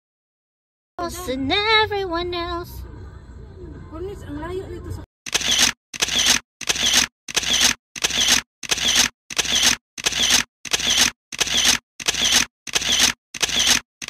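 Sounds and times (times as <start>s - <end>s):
camera shutter clicking: 5.3s - 13.8s.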